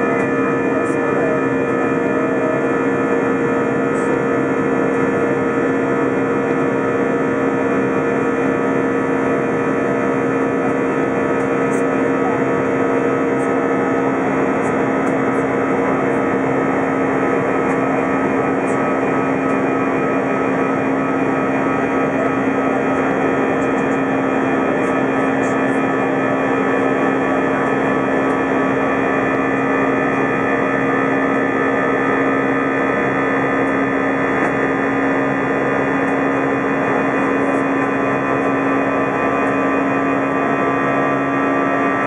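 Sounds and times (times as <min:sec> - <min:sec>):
steady humming tones: 0:00.0 - 0:42.0.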